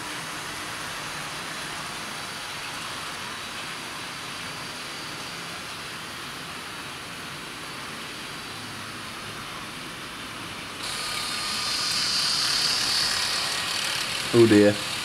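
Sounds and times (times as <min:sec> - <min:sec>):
model locomotive whine: 0:10.8 - 0:15.0
model trains whirring: 0:10.8 - 0:15.0.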